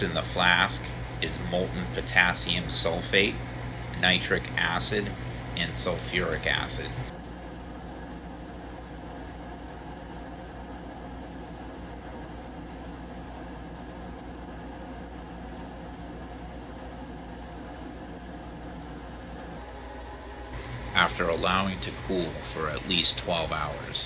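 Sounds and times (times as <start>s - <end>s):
steady mechanical hum: 0.0s - 24.0s.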